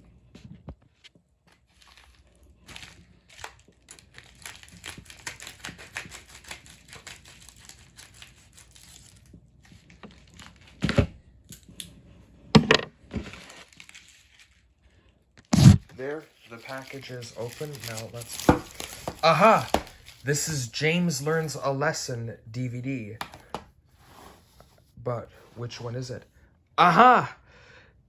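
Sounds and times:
packaging crinkling and tearing: 1.5s - 11.8s, 13.0s - 21.6s.

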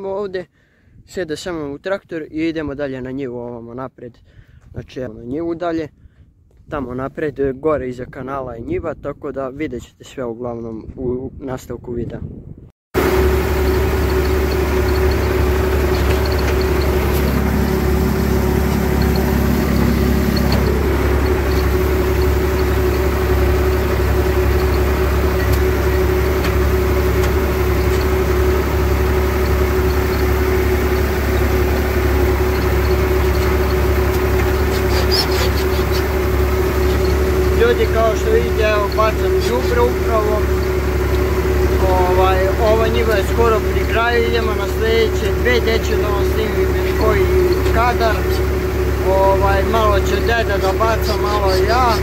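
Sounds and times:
tractor diesel engine running: 13.0s - 52.0s.

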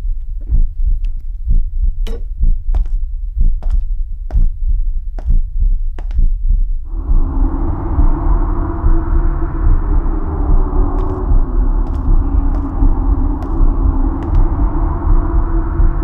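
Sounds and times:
low throbbing heartbeat pulse: 0.0s - 16.0s
gong-like ringing tone: 6.9s - 16.0s.

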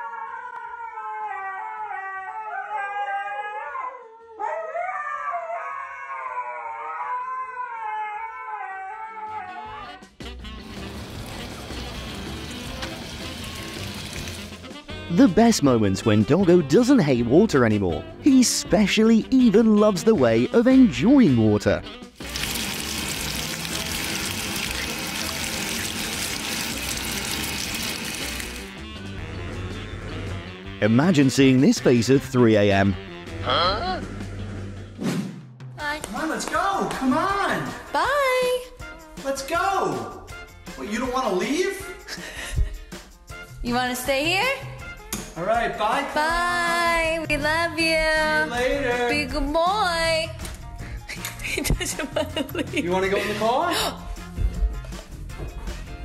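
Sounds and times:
water jet hissing and splashing: 10.6s - 14.7s, 22.2s - 28.7s.

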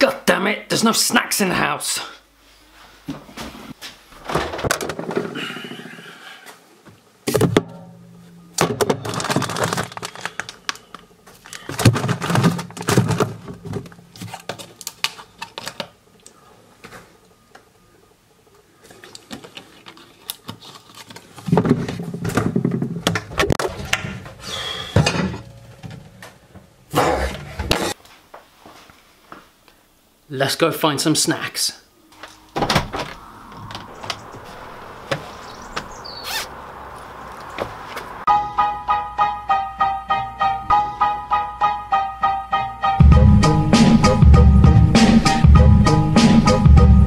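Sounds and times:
knocks and thunks of objects: 4.2s - 5.4s, 7.3s - 7.9s, 8.6s - 9.9s, 11.7s - 14.3s, 21.4s - 24.3s
doors opening and closing: 32.1s - 38.3s.

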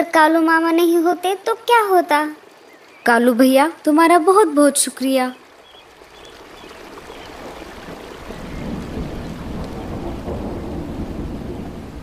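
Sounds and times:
rain hissing: 0.6s - 12.0s
thunder rumbling: 6.4s - 12.0s.

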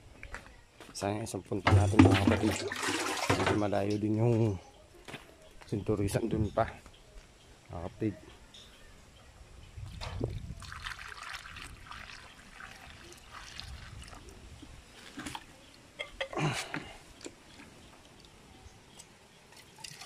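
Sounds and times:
water splashing into tank: 1.7s - 3.7s, 10.0s - 14.3s.

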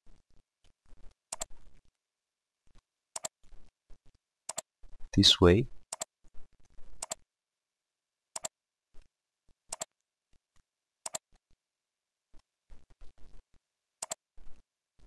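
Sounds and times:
computer mouse clicking: 1.3s - 1.6s, 3.1s - 3.4s, 4.5s - 4.7s, 5.9s - 6.1s, 7.0s - 7.2s, 8.3s - 8.6s, 9.7s - 10.0s, 11.0s - 11.4s, 14.0s - 14.2s.

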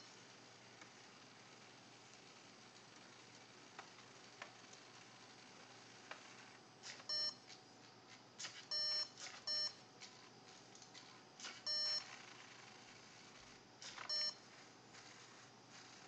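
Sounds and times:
short electronic beeps: 7.1s - 7.4s, 8.7s - 9.8s, 11.6s - 12.1s, 14.0s - 14.4s.

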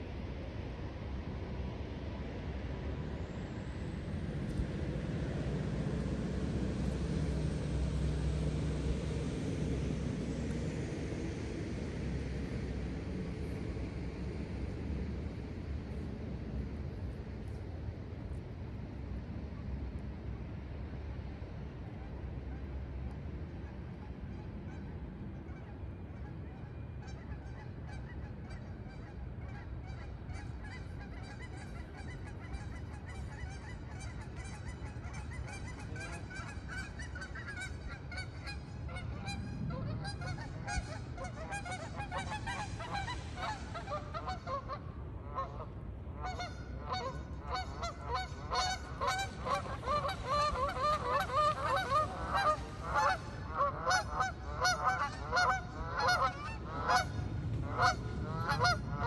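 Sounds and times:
geese honking: 30.7s - 45.6s, 46.2s - 59.0s.

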